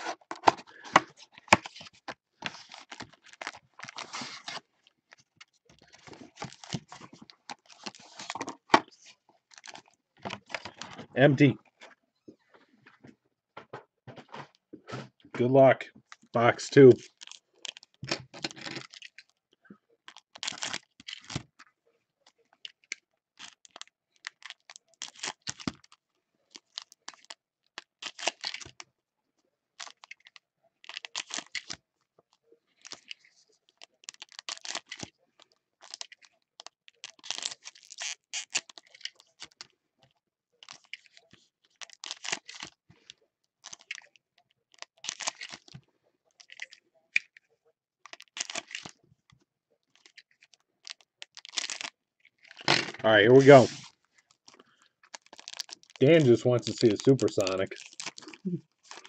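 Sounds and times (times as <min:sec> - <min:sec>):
foil packs crinkling: 0:00.0 - 0:11.1, 0:17.0 - 0:19.3, 0:20.1 - 0:21.5, 0:29.8 - 0:31.8, 0:32.8 - 0:39.7, 0:40.6 - 0:45.8, 0:48.1 - 0:49.0, 0:49.9 - 0:59.0.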